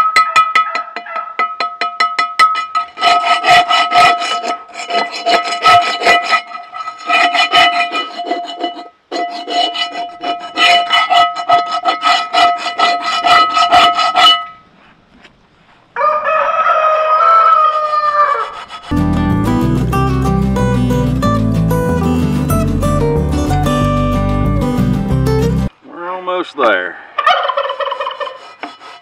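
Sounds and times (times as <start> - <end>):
wire brush scrubbing skillet: 2.4 - 14.6, 27.8 - 29.0
rooster crowing: 16.0 - 18.7.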